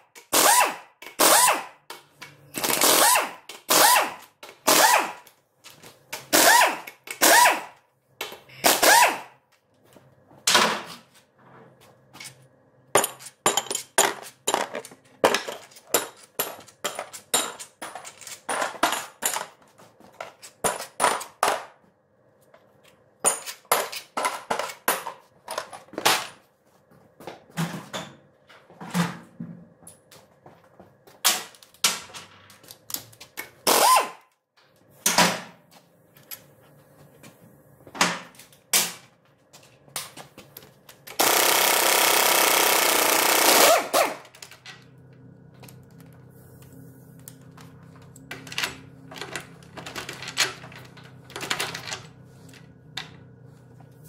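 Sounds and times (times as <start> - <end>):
metal tools knocking and clanking: 13.0 - 19.6.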